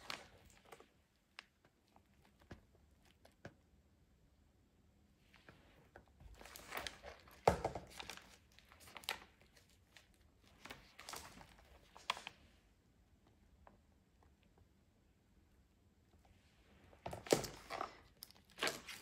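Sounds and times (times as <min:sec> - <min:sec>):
stiff paper pages rustling: 0:06.2 - 0:12.4, 0:17.1 - 0:19.0.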